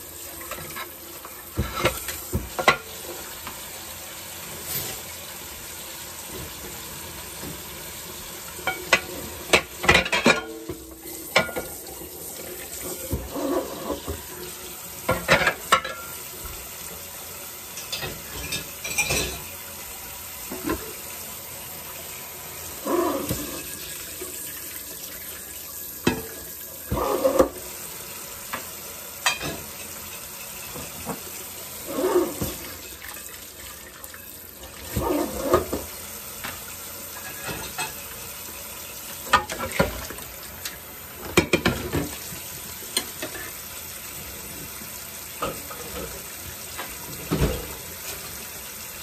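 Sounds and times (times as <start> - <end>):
tap water running into sink: 0.0 - 49.0
dishes clattering: 0.5 - 3.0, 8.6 - 11.8, 15.1 - 16.2, 17.8 - 19.5, 29.2 - 29.9, 37.2 - 38.0, 39.3 - 40.2, 41.2 - 42.2.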